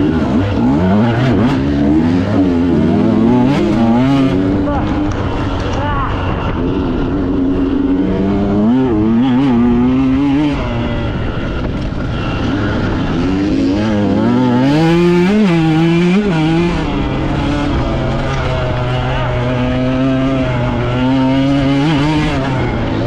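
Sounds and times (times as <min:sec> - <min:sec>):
dirt bike engine revving: 0:00.0 - 0:23.0.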